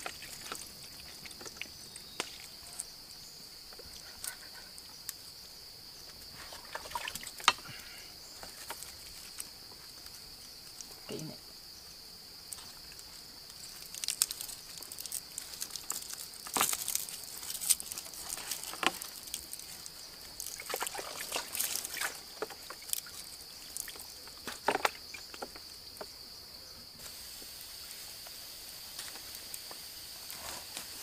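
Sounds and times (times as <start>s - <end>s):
bamboo cracking and scraping: 0.0s - 3.0s, 6.0s - 11.1s, 12.4s - 26.1s
high insect drone: 0.0s - 31.0s.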